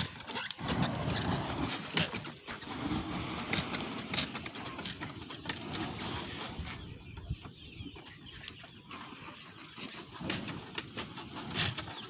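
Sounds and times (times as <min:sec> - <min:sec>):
dry litter burning and crackling: 0:00.0 - 0:06.7.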